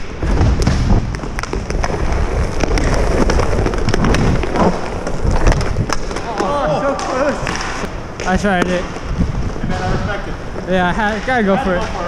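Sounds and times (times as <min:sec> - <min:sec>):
wind rumble on microphone: 0:00.0 - 0:06.0, 0:06.6 - 0:12.0
hockey sticks and puck clicking: 0:00.0 - 0:09.2
skates scraping on ice: 0:00.0 - 0:12.0.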